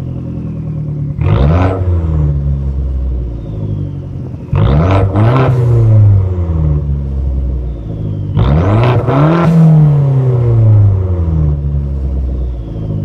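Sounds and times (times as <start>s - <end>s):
car engine revving: 0.0s - 13.0s
turbo whistle: 3.1s - 6.0s, 7.4s - 10.0s.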